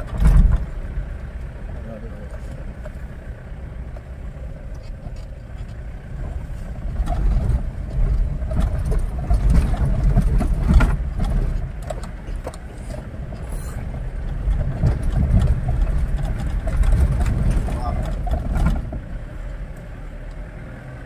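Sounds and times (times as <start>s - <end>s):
body knocks and rattles: 0.0s - 0.8s, 4.8s - 19.1s
engine and tyre rumble: 0.0s - 21.0s.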